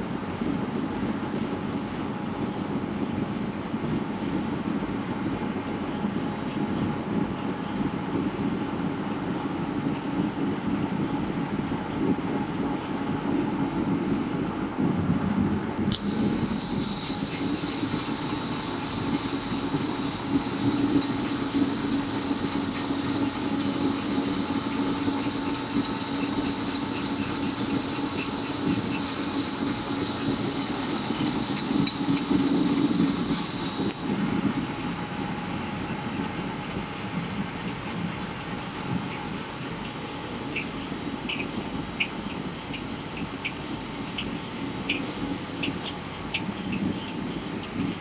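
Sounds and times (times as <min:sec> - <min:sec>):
printing machine hum: 0:00.0 - 0:48.0
thin high whine: 0:15.6 - 0:48.0.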